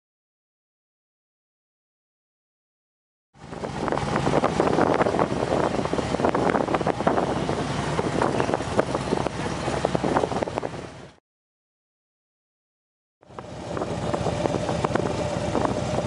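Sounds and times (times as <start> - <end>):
motorcycle engines crackling: 3.4 - 11.2, 13.2 - 16.0.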